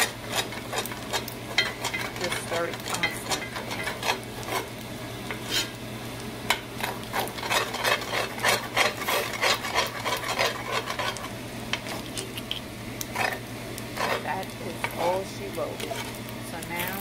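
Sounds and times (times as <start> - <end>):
metal spatula scraping a skillet: 0.0 - 5.8, 6.8 - 12.0, 13.1 - 13.4, 14.0 - 14.4, 15.7 - 16.2
frying sizzle: 0.0 - 17.0.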